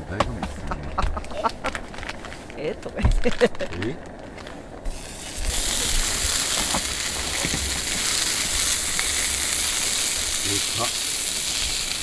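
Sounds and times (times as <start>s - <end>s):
sausages sizzling in a frying pan: 4.9s - 12.0s.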